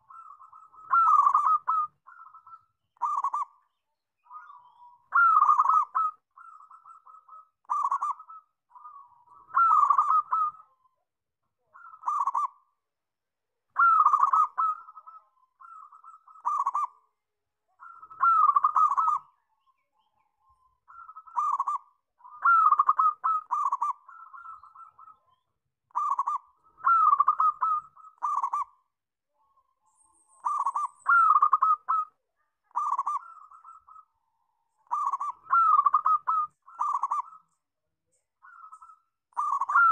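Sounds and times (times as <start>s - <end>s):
dove cooing: 0.0s - 3.6s, 4.3s - 10.8s, 11.7s - 12.7s, 13.8s - 17.0s, 17.8s - 19.4s, 20.9s - 28.8s, 30.4s - 34.1s, 34.8s - 37.5s, 38.4s - 39.9s.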